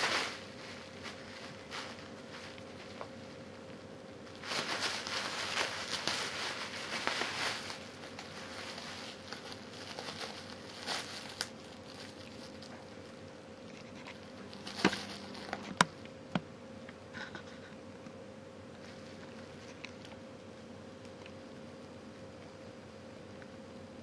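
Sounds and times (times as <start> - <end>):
bubble wrap snapping: 0.0 - 3.2, 4.2 - 13.2, 14.4 - 16.0
bubble wrap crinkling: 0.0 - 16.0.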